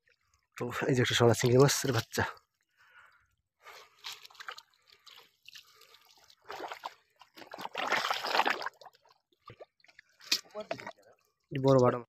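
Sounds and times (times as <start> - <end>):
water trickling and dripping: 0.0 - 12.0
splashing in shallow water: 3.6 - 11.0.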